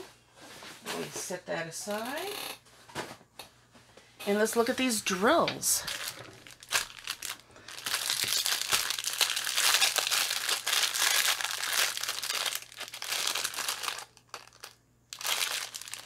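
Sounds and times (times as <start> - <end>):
plastic bag crinkling: 5.7 - 16.0.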